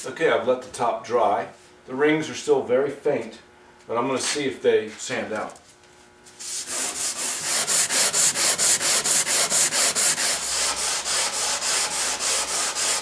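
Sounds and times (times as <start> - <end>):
sandpaper sanding wood: 6.4 - 13.0.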